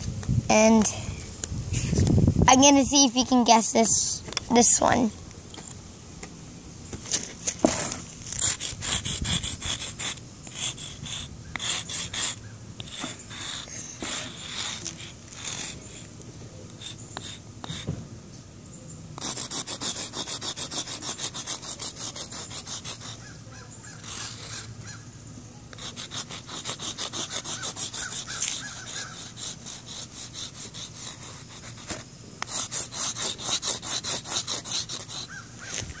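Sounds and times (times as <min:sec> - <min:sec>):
chalk scraping on concrete: 0:07.1 - 0:16.1, 0:16.7 - 0:17.9, 0:19.2 - 0:24.8, 0:25.7 - 0:35.9.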